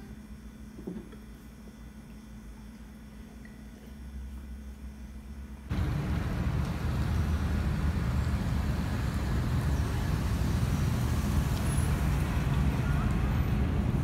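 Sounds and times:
deep rumble with hiss: 4.6s - 14.0s.

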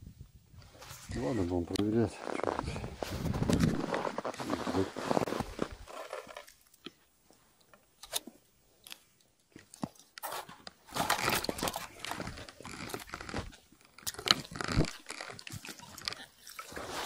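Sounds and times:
snow crunching and rustling: 0.6s - 6.5s.

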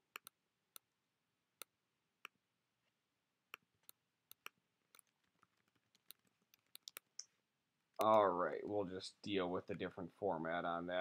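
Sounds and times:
computer mouse clicks: 0.1s - 0.9s, 3.5s - 7.3s.

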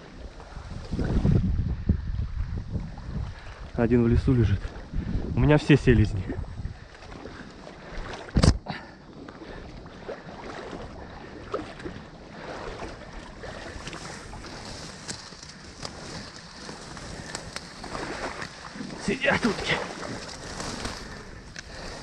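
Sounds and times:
dry reeds rustling and crackling: 13.4s - 22.0s.

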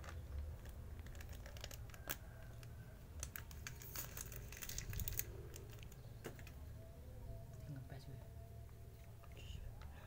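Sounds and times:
plastic bags crinkling: 0.0s - 6.6s.

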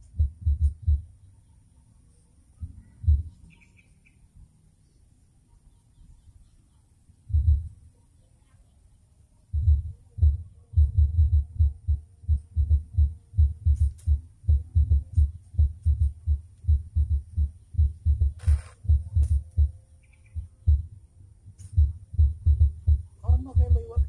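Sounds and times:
muffled thumps on microphone: 9.6s - 19.8s, 21.5s - 24.0s.

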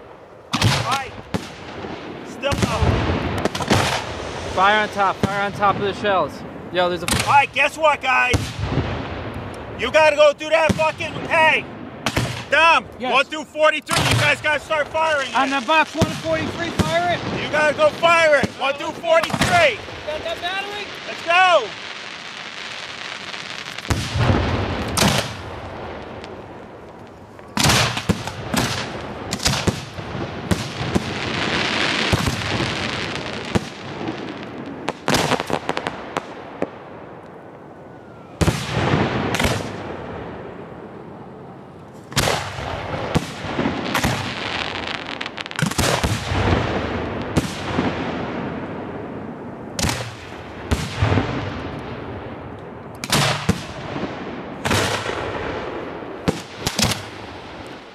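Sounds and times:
firework booms: 0.0s - 13.2s, 13.8s - 40.9s, 42.1s - 57.9s
firework hissing and crackling: 0.6s - 13.2s, 13.8s - 36.4s, 42.1s - 48.0s.

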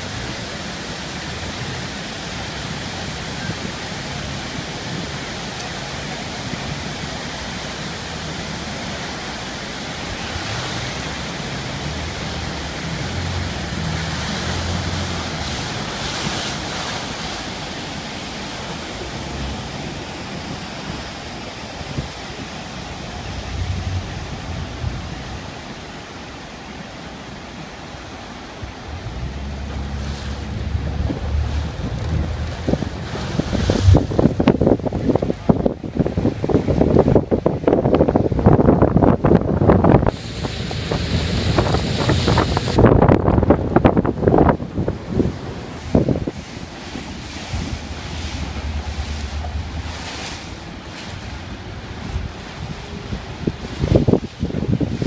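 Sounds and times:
churning river water: 0.0s - 55.0s
waterfall roaring: 0.0s - 55.0s
wind on microphone: 10.0s - 26.0s, 28.6s - 55.0s.

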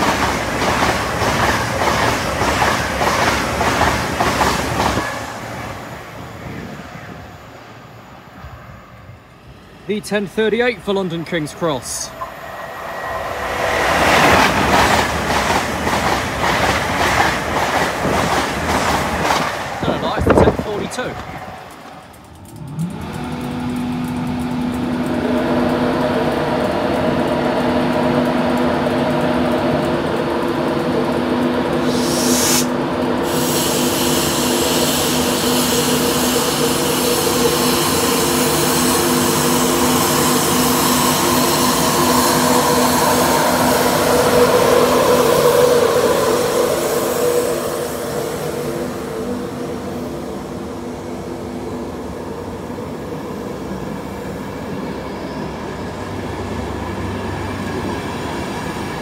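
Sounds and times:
train rumble: 0.0s - 59.0s
train whining tones: 0.0s - 59.0s
brief high hiss: 31.8s - 35.8s.

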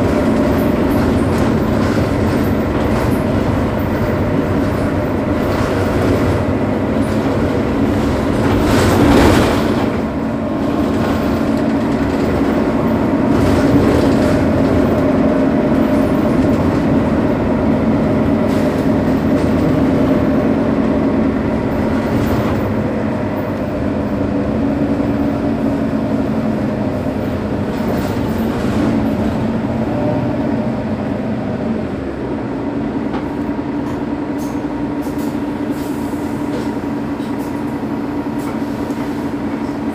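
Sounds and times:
diesel bus engine idling: 0.0s - 9.1s, 9.7s - 39.9s.

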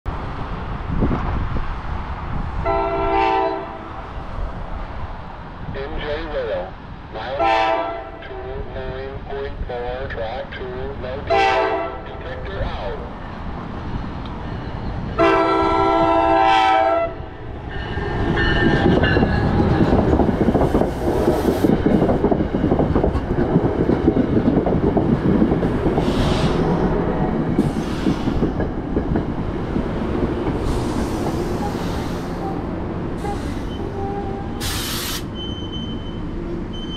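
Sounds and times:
train rumble and wheel clatter: 0.1s - 36.9s
locomotive chime horn: 2.7s - 3.9s, 11.3s - 12.1s, 15.2s - 17.2s.

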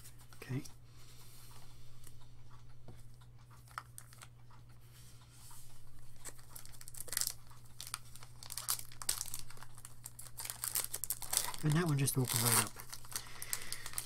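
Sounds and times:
foil wrapper tearing and crinkling: 6.2s - 14.0s.

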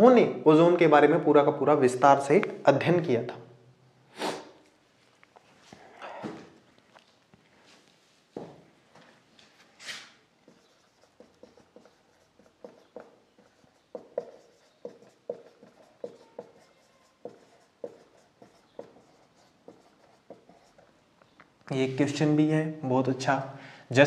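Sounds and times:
marker squeaking on whiteboard: 9.8s - 21.6s.

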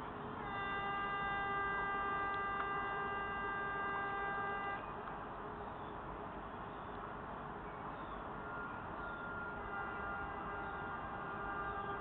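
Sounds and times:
outdoor background noise: 0.0s - 12.0s
warning horn long note: 0.4s - 4.8s, 8.5s - 12.0s.

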